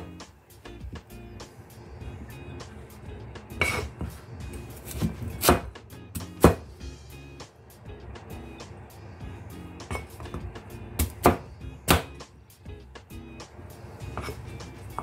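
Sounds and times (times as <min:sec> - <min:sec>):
background music: 0:00.0 - 0:15.0
cleaver chopping on plastic board: 0:04.8 - 0:06.7, 0:11.0 - 0:12.2.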